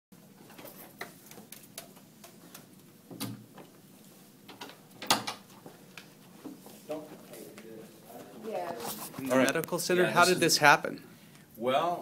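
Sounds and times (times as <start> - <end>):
footsteps on tile floor: 5.5 - 9.4.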